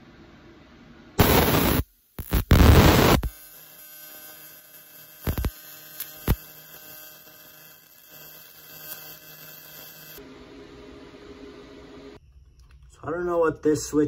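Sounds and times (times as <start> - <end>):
welding arc crackling: 1.2 - 10.2
welding arc electric hum: 1.2 - 12.2.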